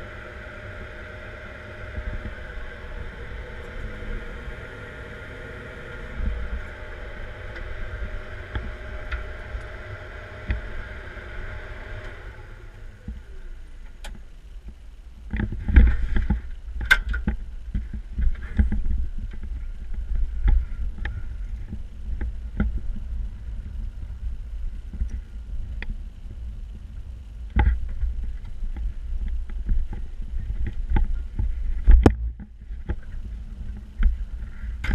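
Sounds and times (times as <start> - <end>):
diesel engine running: 0.0 - 13.9.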